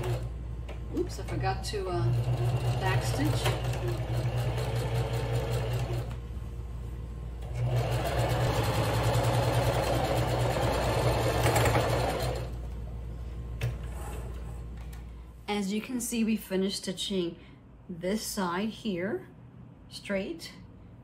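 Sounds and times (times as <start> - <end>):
sewing machine stitching: 0.0 - 0.3, 1.8 - 6.2, 7.4 - 12.6.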